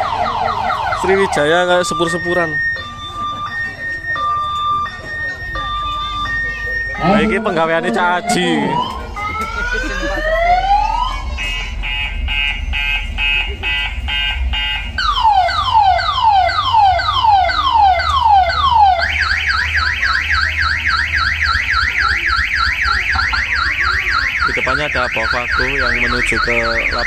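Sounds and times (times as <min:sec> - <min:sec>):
siren effects: 0:00.0 - 0:27.0
low bass hum: 0:06.9 - 0:16.4.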